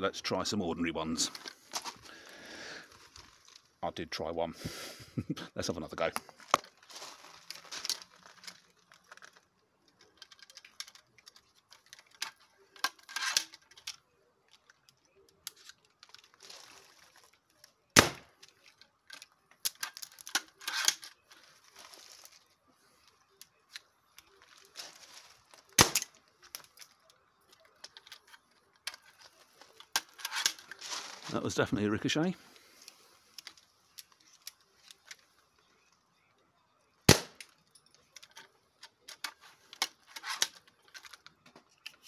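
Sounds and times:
rustling and pistol clicks: 6.0s - 31.4s, 32.4s - 36.0s, 37.1s - 42.0s
crossbow bolt sharp crack: 18.0s - 18.3s, 25.8s - 26.1s, 37.1s - 37.5s.

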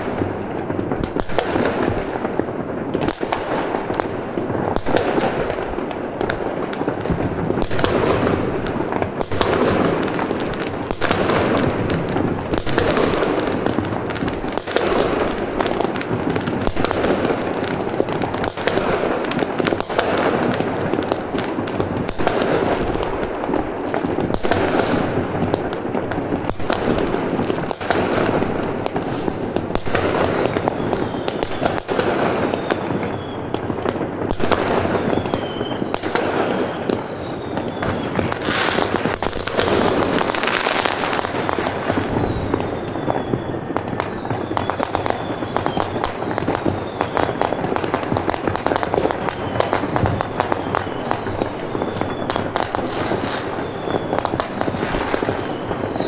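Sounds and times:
fireworks banging and crackling: 0.0s - 56.0s
faint firework whistles: 24.3s - 56.0s.

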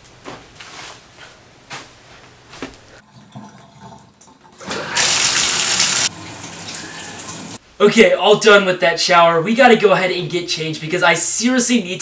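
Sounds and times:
shower water gushing: 3.0s - 7.6s.

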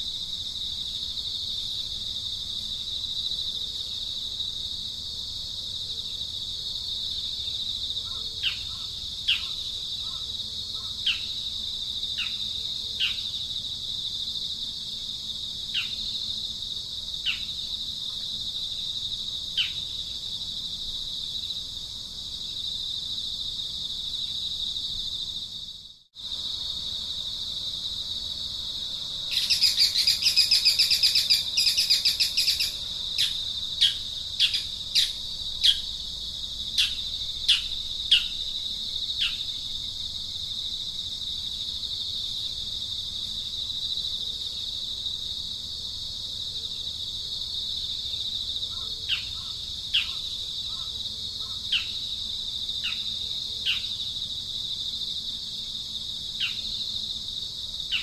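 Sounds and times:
insect drone: 0.0s - 58.0s
bird buzzy trill: 29.3s - 35.9s.

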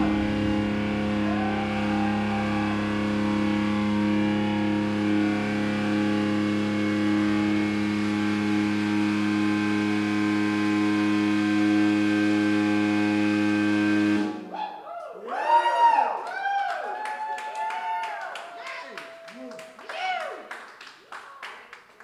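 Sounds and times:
guitar amplifier feedback drone: 0.0s - 14.5s.

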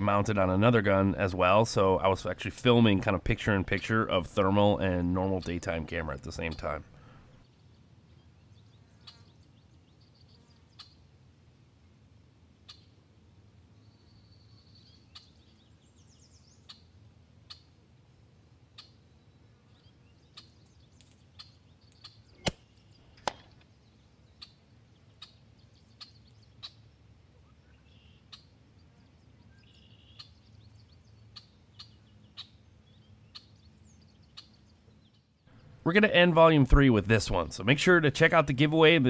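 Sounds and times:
birds chirping: 0.0s - 11.1s, 13.8s - 17.8s, 18.8s - 39.0s
air rifle shot crack: 22.4s - 23.6s.

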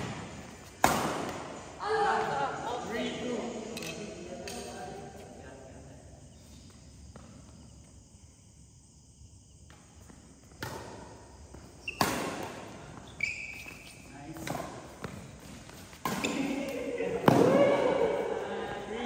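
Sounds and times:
racket striking shuttlecock: 0.0s - 1.5s, 10.6s - 11.2s, 11.9s - 13.0s, 14.4s - 17.6s
shoe squeaks on court floor: 11.6s - 16.6s.

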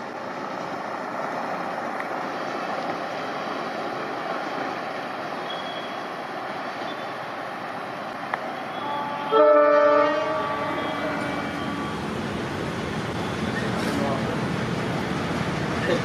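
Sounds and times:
train running noise: 0.0s - 16.0s
locomotive horn: 8.7s - 12.0s.

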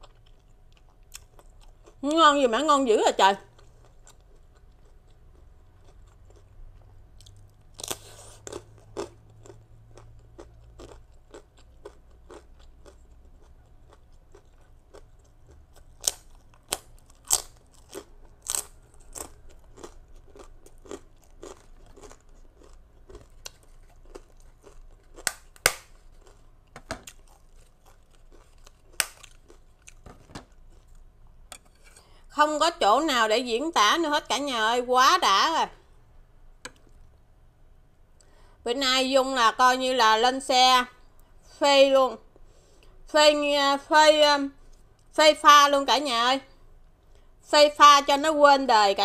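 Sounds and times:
person crunching rice cracker: 0.0s - 2.0s, 3.4s - 31.1s.

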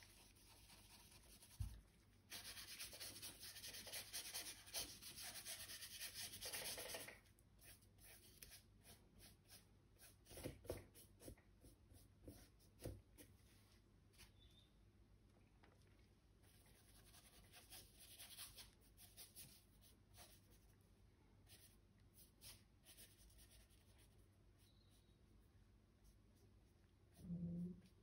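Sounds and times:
paintbrush scrubbing paint: 0.0s - 13.8s, 21.5s - 28.0s
paintbrush dabs and strokes: 0.0s - 14.6s, 16.3s - 28.0s.

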